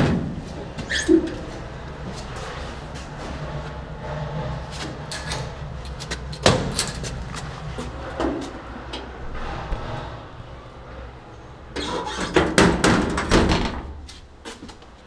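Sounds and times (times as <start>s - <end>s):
lift car humming: 0.0s - 13.3s.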